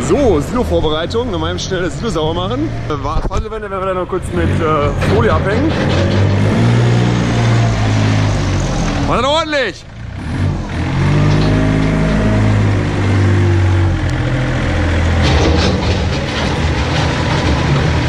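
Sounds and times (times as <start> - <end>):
wheel loader engine running: 0.0 - 18.0
rattling knocks: 4.9 - 9.1, 11.0 - 12.5, 15.0 - 18.0.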